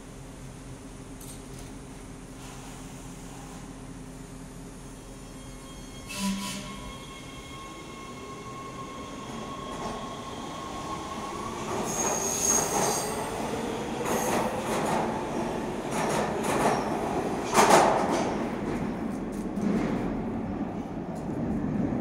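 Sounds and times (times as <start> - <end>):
train wheels squealing: 5.0 - 14.3.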